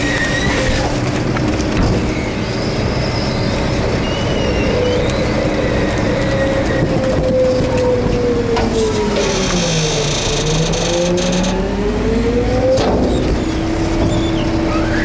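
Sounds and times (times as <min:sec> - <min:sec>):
garbage truck engine and hydraulics: 0:00.0 - 0:15.0
wind noise on microphone: 0:05.2 - 0:08.7.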